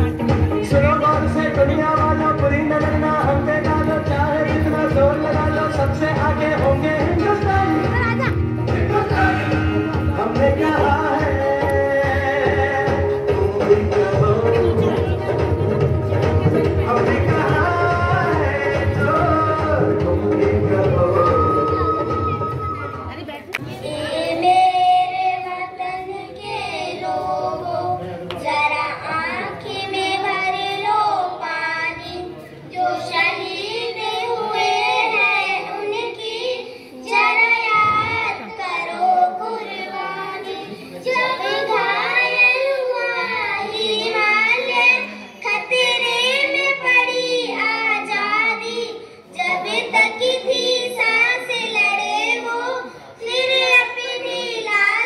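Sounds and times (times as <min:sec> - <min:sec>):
faint backing music: 0:00.0 - 0:55.0
child singing: 0:23.6 - 0:55.0.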